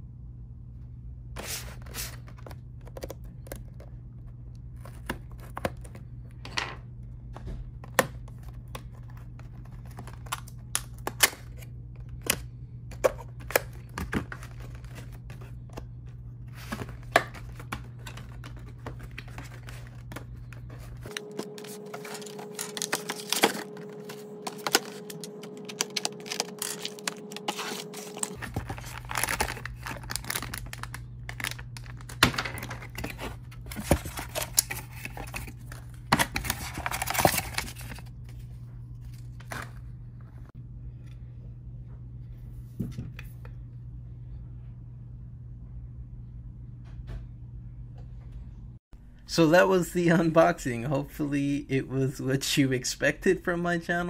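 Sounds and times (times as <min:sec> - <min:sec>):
low steady hum: 0:00.0 - 0:54.0
cardboard and tape tearing: 0:21.1 - 0:38.0.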